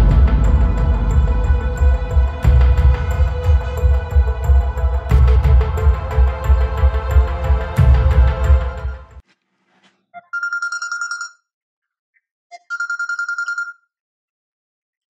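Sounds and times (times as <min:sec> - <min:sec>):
background music: 0:00.0 - 0:09.2
phone ringing with electronic trill: 0:10.2 - 0:11.5, 0:12.5 - 0:13.9.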